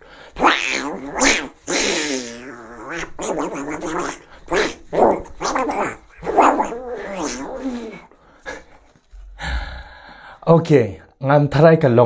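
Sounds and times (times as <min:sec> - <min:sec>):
man imitating dog growls and barks: 0:00.3 - 0:08.2.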